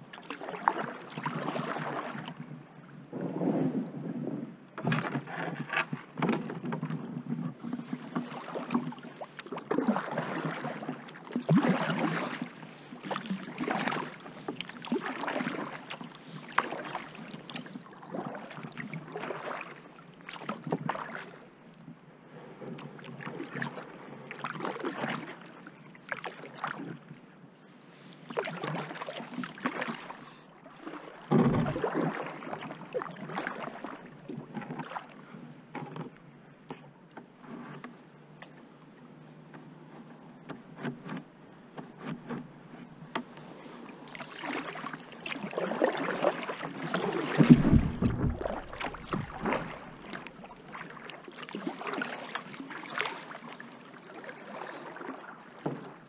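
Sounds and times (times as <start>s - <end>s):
paddle strokes swishing through water: 0.0s - 56.0s
loud thump: 47.4s - 49.8s.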